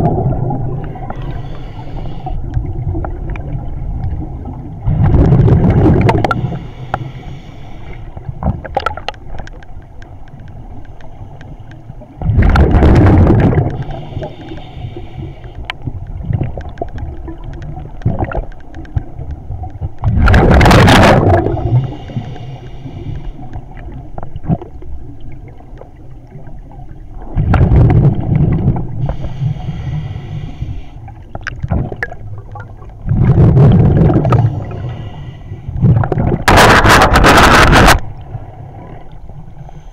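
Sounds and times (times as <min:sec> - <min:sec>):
underwater air bubbles bursting: 0:00.0 - 0:01.4, 0:02.4 - 0:06.6, 0:12.2 - 0:14.4, 0:15.8 - 0:22.1, 0:23.7 - 0:29.3, 0:31.2 - 0:34.9, 0:35.8 - 0:38.3
soft hiss: 0:00.9 - 0:02.6, 0:06.4 - 0:08.4, 0:13.7 - 0:16.2, 0:21.7 - 0:24.3, 0:28.9 - 0:31.3.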